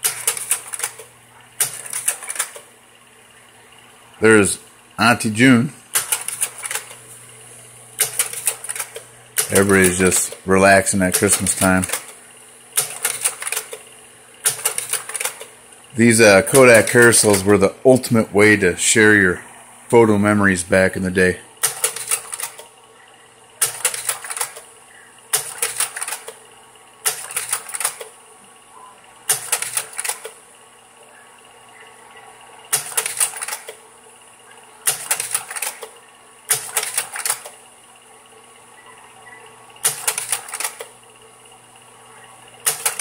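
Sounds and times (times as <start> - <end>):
slide projector mechanical clicks: 0.0 - 2.7, 5.9 - 7.0, 8.0 - 10.4, 11.0 - 15.6, 16.4 - 17.6, 21.6 - 22.7, 23.6 - 24.7, 25.3 - 28.2, 29.2 - 30.4, 32.7 - 33.8, 34.8 - 37.6, 39.8 - 41.0, 42.6 - 43.0
projector fan hum: 0.0 - 43.0.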